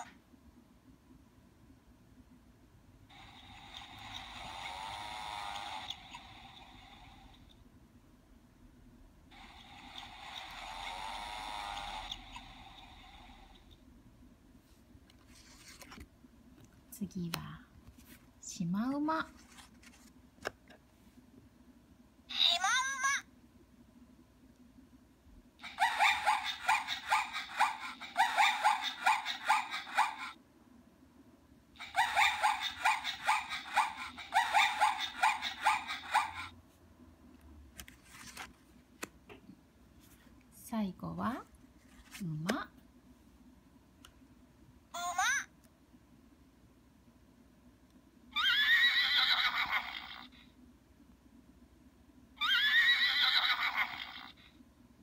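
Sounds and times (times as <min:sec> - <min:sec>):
recorded horse whinny from toy speaker: 0:03.2 - 0:07.1, 0:09.4 - 0:12.6, 0:48.3 - 0:50.4, 0:52.4 - 0:54.5.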